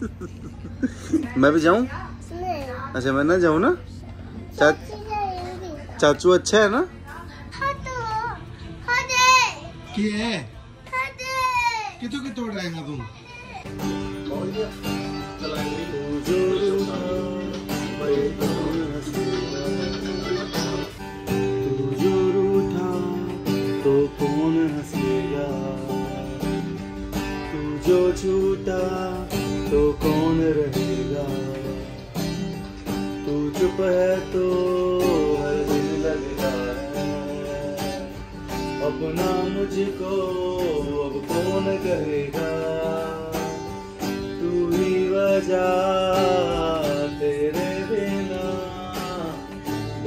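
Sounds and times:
acoustic guitar strumming: 0:13.2 - 0:50.0
man singing: 0:13.8 - 0:50.0.

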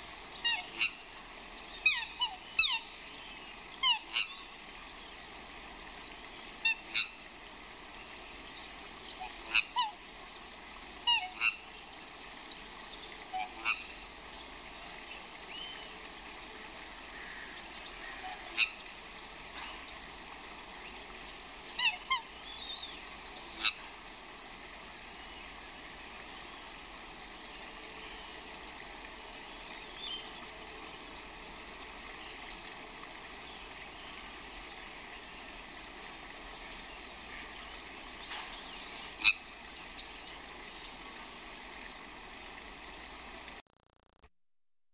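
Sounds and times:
swans calling: 0:00.0 - 0:24.1, 0:37.0 - 0:40.9
steady background hiss: 0:00.0 - 0:43.6.

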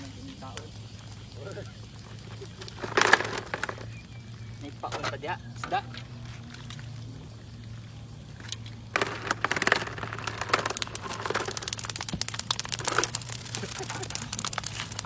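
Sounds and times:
fish tail beating concrete: 0:09.0 - 0:15.0.

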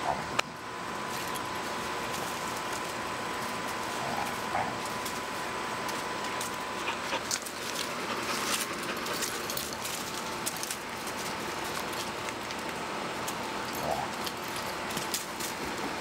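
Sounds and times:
steady outdoor hiss: 0:00.0 - 0:16.0
dogs scuffling on dirt: 0:00.9 - 0:16.0.

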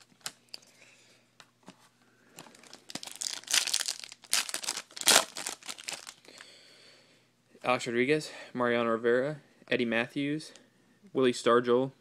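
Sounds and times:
wrapper crinkling and tearing: 0:02.4 - 0:06.4.

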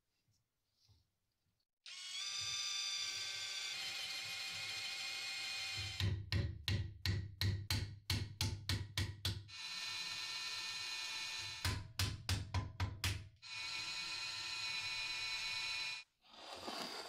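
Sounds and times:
electric drill running: 0:01.9 - 0:06.0, 0:09.5 - 0:11.6, 0:13.4 - 0:16.0.

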